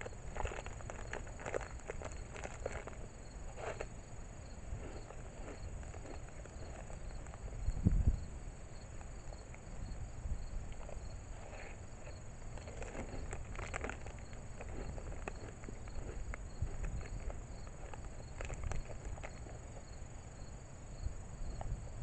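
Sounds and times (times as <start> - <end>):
insect chirping: 0.0 - 22.0
wind buffeting microphone: 4.6 - 8.5.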